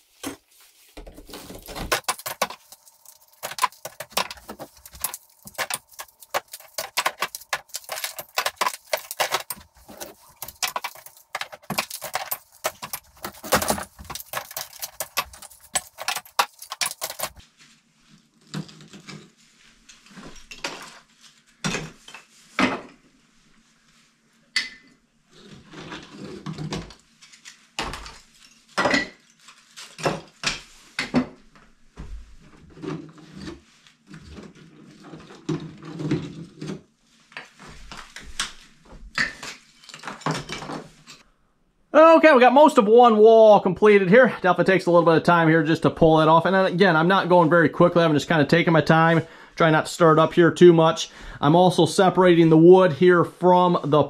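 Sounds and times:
lath pieces dropped into buckets: 0.1s - 17.4s
plaster and lath crackling: 0.1s - 17.4s.

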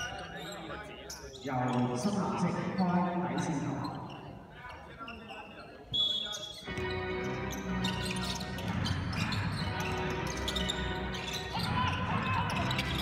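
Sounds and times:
music playing in hall: 6.6s - 13.0s.

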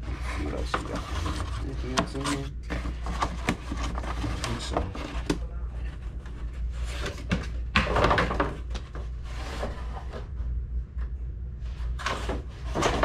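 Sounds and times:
cardboard scraping and rustling: 0.0s - 10.3s, 11.8s - 13.0s
low hum: 0.0s - 13.0s.

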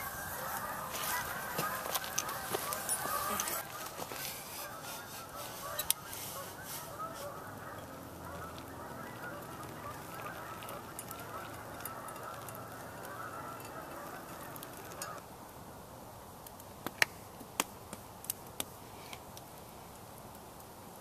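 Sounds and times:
geese honking: 0.0s - 15.2s.

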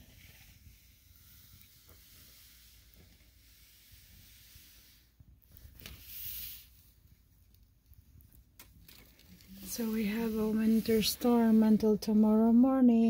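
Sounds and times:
outdoor ambience hiss: 0.0s - 13.0s.

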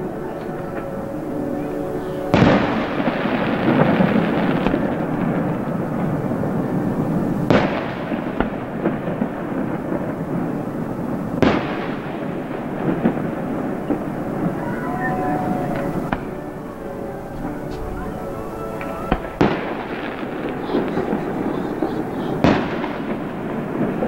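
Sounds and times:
fireworks crackling: 0.0s - 24.0s
fireworks shells bursting: 7.4s - 24.0s.

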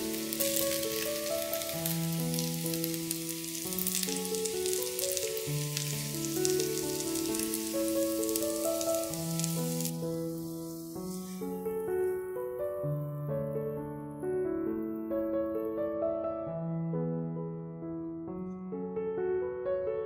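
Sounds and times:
food sizzling in a pan: 0.0s - 12.3s
keyboard background music: 0.0s - 20.0s.

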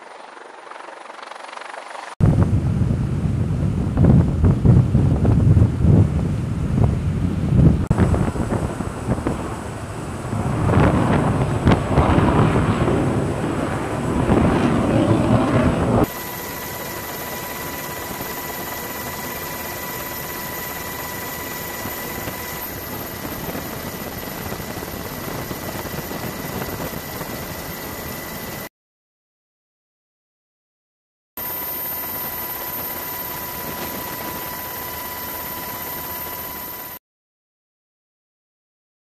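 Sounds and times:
wind rushing over microphone: 2.2s - 16.2s, 21.8s - 28.1s
faint steady whines: 2.2s - 28.7s, 31.4s - 37.0s
aircraft cabin noise: 7.9s - 28.6s, 31.4s - 36.9s.

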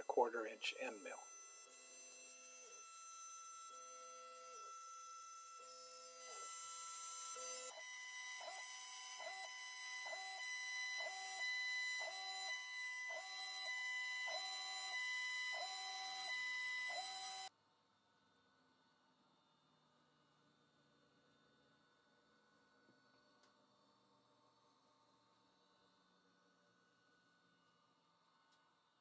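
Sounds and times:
drive motor tones: 0.0s - 17.5s
router spindle whine: 0.0s - 17.5s.

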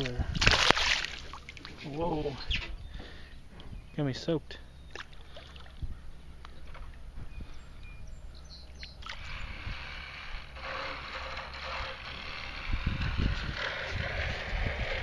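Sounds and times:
wind rumble on microphone: 0.0s - 0.7s, 1.9s - 4.0s, 5.7s - 10.4s, 11.8s - 15.0s
fish splashing at water surface: 0.0s - 1.8s.

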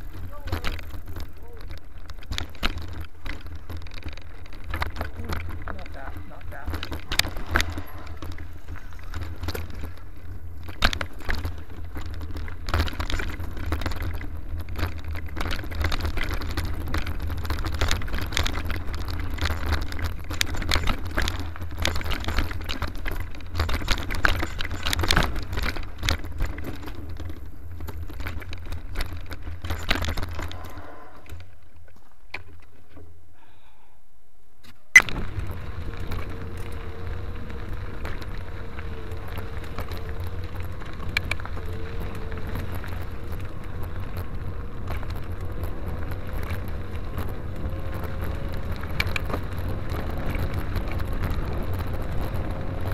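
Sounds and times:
low rolling rumble: 0.0s - 32.3s, 35.0s - 52.9s
bike parts clicking and jangling: 0.0s - 33.0s, 34.7s - 52.9s
mountain bike rattling on dirt trail: 0.0s - 33.2s, 34.7s - 52.9s.

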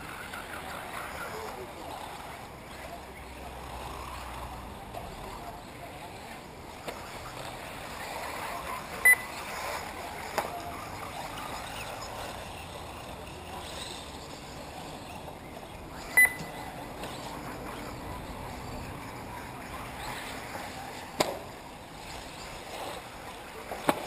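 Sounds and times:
outdoor background noise: 0.0s - 24.0s
short electronic beeps: 9.0s - 9.4s, 16.1s - 16.6s.

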